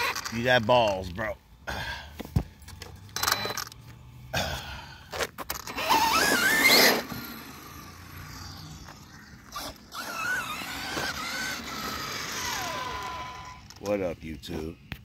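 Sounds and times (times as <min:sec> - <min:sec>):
electric motor whining: 0:05.5 - 0:13.8.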